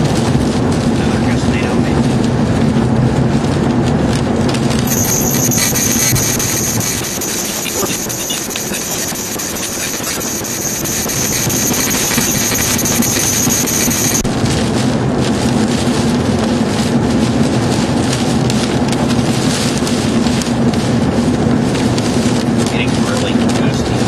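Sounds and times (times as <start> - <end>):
road noise inside vehicle: 0.0 - 4.9, 14.2 - 24.0
low engine drone: 4.7 - 24.0.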